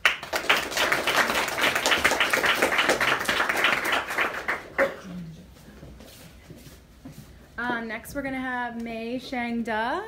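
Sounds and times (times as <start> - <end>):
audience applauding: 0.0 - 5.1.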